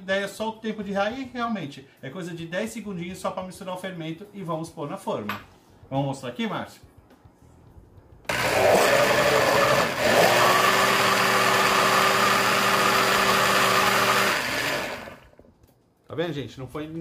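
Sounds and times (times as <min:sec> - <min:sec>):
countertop blender running: 0:08.3 - 0:15.4.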